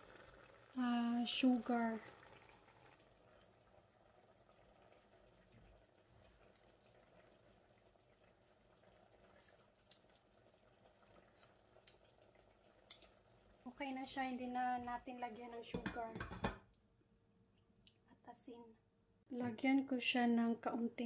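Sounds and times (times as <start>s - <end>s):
pot simmering: 0.0s - 16.8s.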